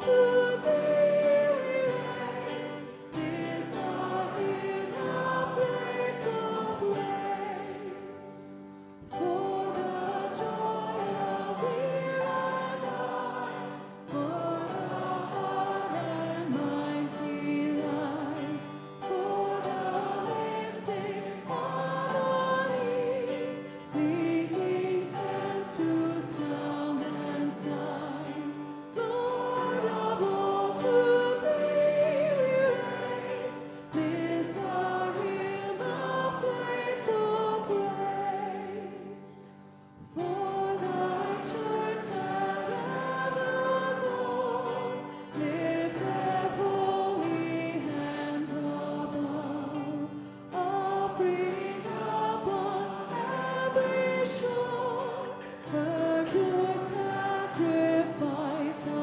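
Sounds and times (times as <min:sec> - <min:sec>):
acoustic guitar: 0:00.0 - 0:59.0
congregation singing a hymn: 0:00.0 - 0:59.0
piano: 0:00.0 - 0:59.0.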